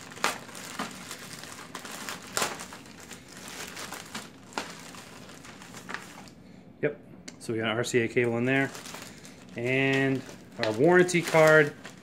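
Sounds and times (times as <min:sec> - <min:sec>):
plastic bag crinkling: 0:00.0 - 0:06.4, 0:08.1 - 0:12.0.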